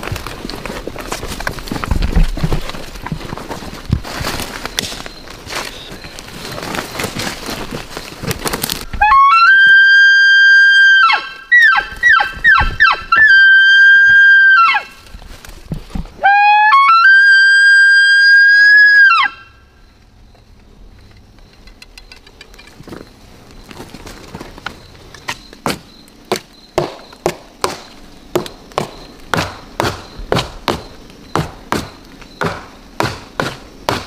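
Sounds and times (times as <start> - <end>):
rustling: 0.0 - 9.0, 14.8 - 16.2, 20.2 - 26.1
elk bugle whistle: 9.0 - 14.9, 16.2 - 19.6.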